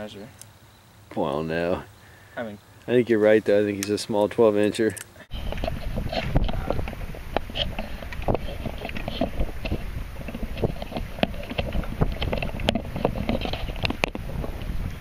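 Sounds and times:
wind buffeting microphone: 5.3s - 15.0s.

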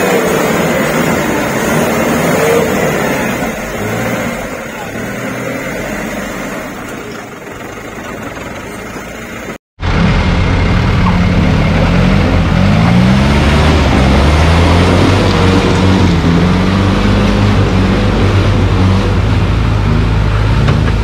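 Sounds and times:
off-road engines revving: 0.0s - 21.0s.

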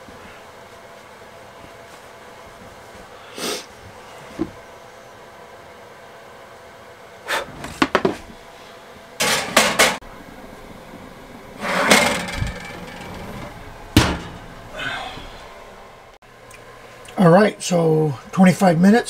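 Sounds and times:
metal baking sheet clattering: 9.2s - 10.0s, 11.6s - 14.7s
oven door shutting: 11.5s - 15.4s.

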